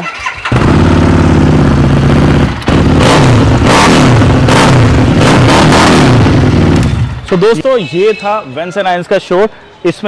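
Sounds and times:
motorcycle engine running: 0.4s - 7.2s.

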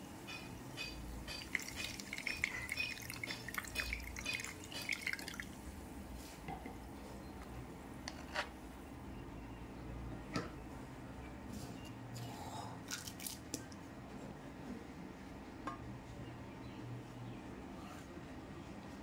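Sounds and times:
water splashing into tub: 1.4s - 5.6s, 12.9s - 13.6s.

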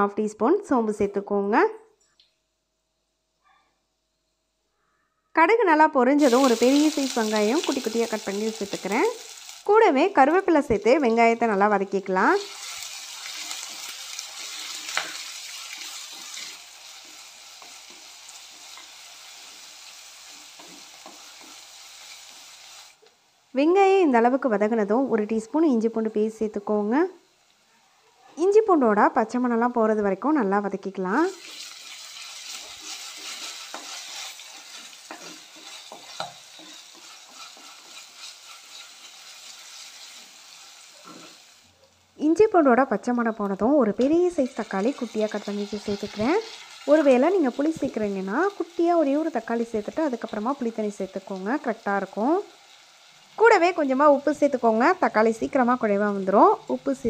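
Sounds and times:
onion sizzling in hot oil: 6.2s - 27.7s, 28.4s - 57.0s
wooden spatula scraping pot: 31.4s - 39.3s.

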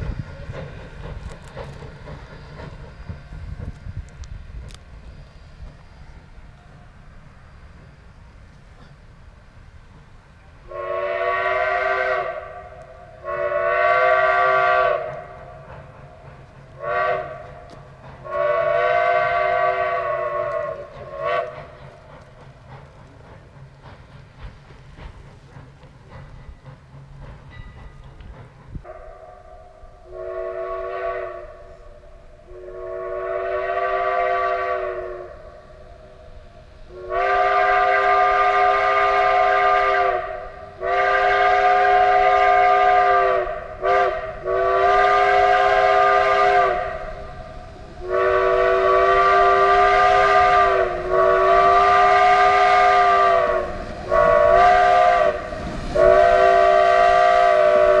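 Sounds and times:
steam locomotive chime whistle: 10.4s - 15.6s, 16.3s - 22.0s, 27.5s - 58.0s.

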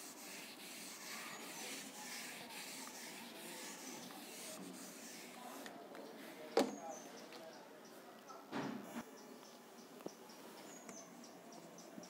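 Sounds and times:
cloth wiping whiteboard: 0.0s - 5.7s.

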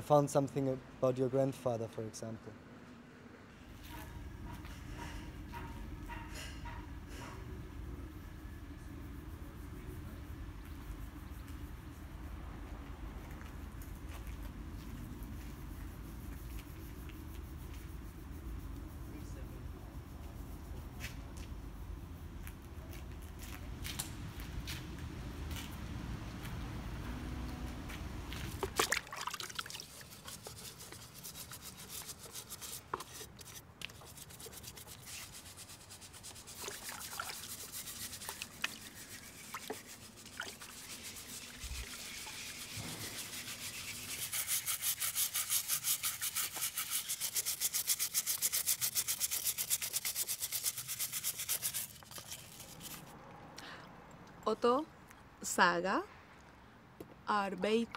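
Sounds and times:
rapid rubbing strokes: 29.8s - 53.1s.

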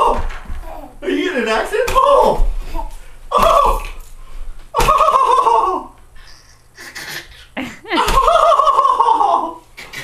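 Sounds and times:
baby laughing: 4.8s - 10.0s.

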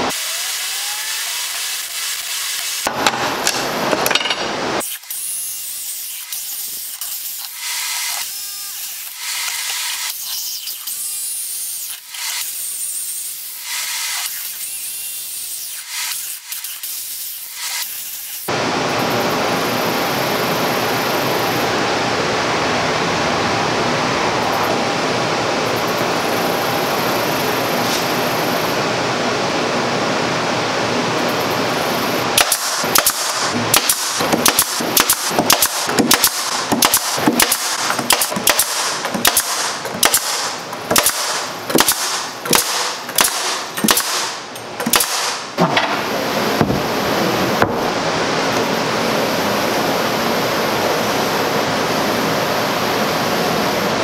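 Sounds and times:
pneumatic nailer firing: 0.0s - 18.5s, 32.4s - 46.9s
steady rushing noise: 18.5s - 54.0s.

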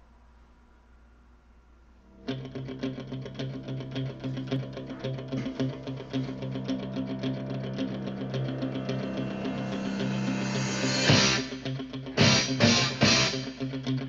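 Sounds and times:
sustained low notes: 2.1s - 13.4s
plucked notes run: 2.2s - 13.8s.

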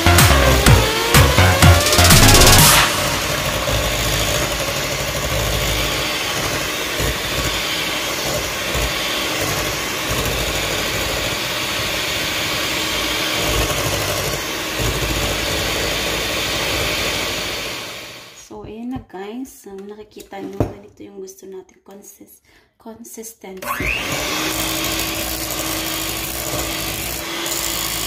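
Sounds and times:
electronic music: 0.0s - 3.6s
electric hand mixer whipping cream: 0.0s - 18.4s, 23.6s - 28.0s.

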